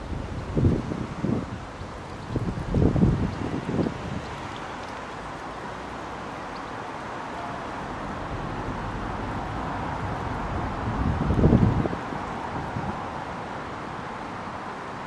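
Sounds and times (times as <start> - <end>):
road traffic noise: 0.0 - 15.0
vehicle passing with low rumble: 2.2 - 13.6.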